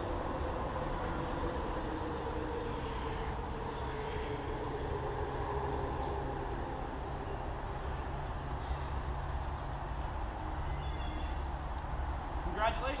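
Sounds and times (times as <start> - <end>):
low outdoor rumble and hiss: 0.0 - 13.0
bird chirp: 5.6 - 6.3, 7.0 - 11.9.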